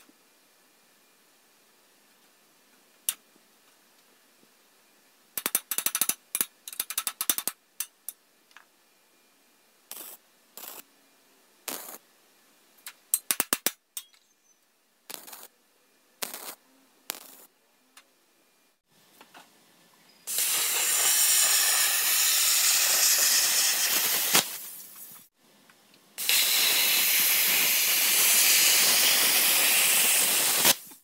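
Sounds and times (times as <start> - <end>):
welder arc crackle: 9.9 - 10.8, 11.7 - 12.0, 15.1 - 15.5, 16.2 - 17.5, 20.3 - 25.3, 26.2 - 31.0.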